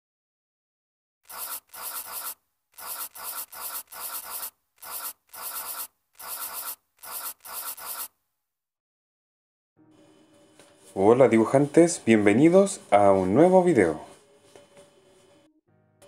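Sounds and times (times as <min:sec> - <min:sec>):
pencil scratching on paper: 0:01.3 - 0:08.2.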